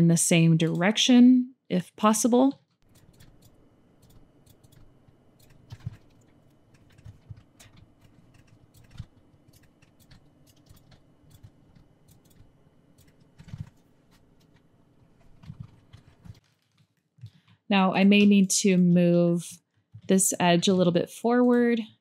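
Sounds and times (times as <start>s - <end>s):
keyboard and mouse clicks: 2.8s - 18.9s.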